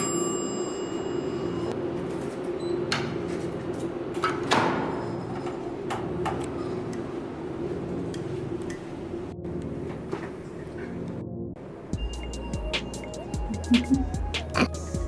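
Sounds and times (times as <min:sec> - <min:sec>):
steady high tone: 0:12.0 - 0:14.3.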